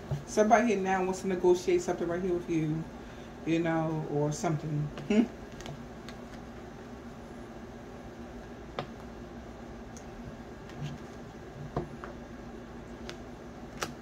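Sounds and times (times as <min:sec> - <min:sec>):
low room hum: 0:00.0 - 0:14.0.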